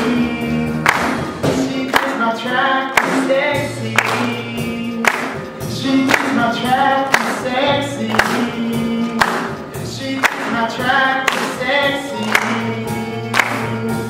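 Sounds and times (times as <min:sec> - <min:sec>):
backing track: 0:00.0 - 0:14.0
man singing country song: 0:00.0 - 0:14.0
drum hits: 0:00.9 - 0:02.2.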